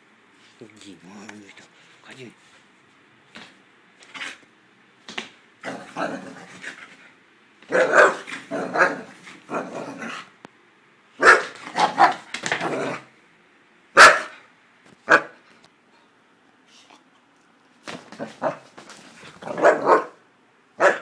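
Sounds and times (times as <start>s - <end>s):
dog barking in play: 5.6s - 6.8s, 7.7s - 10.3s, 11.2s - 13.1s, 13.9s - 15.4s, 18.1s - 18.8s, 19.4s - 20.2s, 20.8s - 21.0s.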